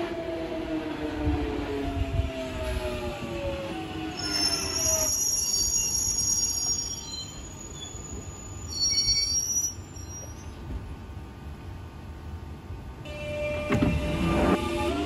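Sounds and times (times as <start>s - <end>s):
train brake squeals: 4.1s - 10.7s
train drive whine: 13.1s - 15.0s.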